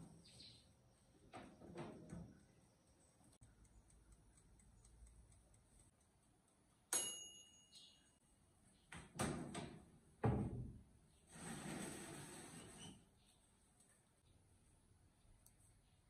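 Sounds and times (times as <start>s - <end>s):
timer bell ding: 6.9s - 8.2s.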